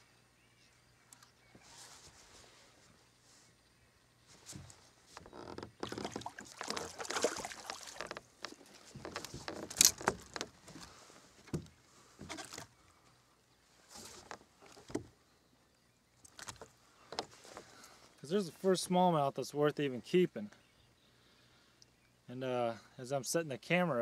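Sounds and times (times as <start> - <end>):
fish splashing: 5.8 - 8.7.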